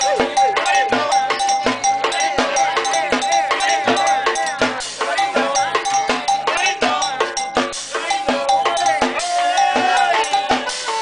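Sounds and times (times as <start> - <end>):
accordion: 0.0 - 11.0
quick percussion beat: 0.0 - 11.0
saxophone: 8.4 - 11.0.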